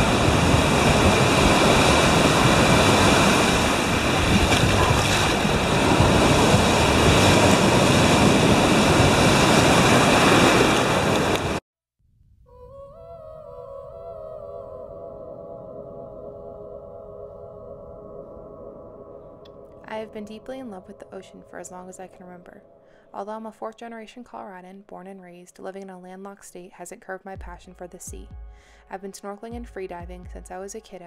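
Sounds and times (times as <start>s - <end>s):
ocean waves breaking on beach: 0.0s - 11.6s
soft ambient music: 12.8s - 31.0s.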